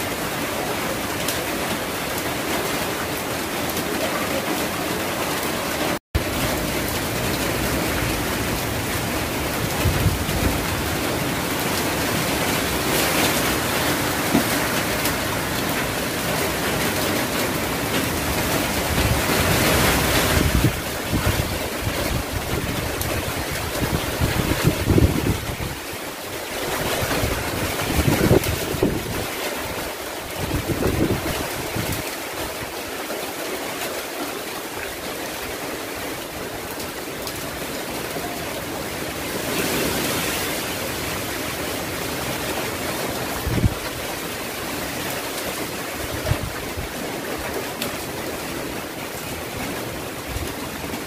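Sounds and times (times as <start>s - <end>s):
wind and heavy rain: 0.0s - 51.0s
wind buffeting microphone: 7.6s - 14.2s, 18.1s - 25.9s, 26.8s - 29.3s, 30.4s - 32.1s, 43.2s - 44.2s, 46.0s - 47.0s.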